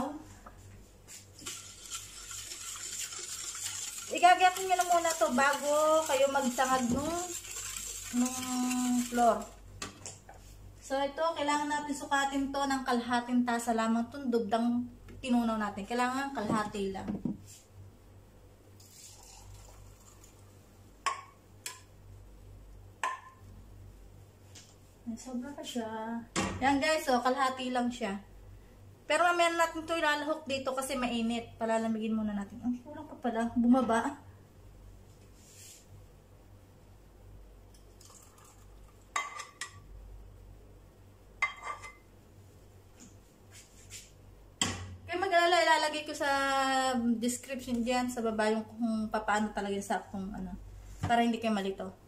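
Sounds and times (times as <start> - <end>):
kitchenware clinking: 39.1 - 39.8, 41.4 - 42.0.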